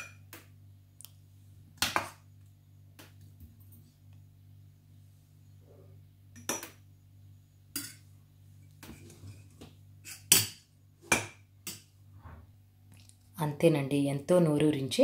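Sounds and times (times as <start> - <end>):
metal spoon clinking on saucepan: 7.7 - 8.0.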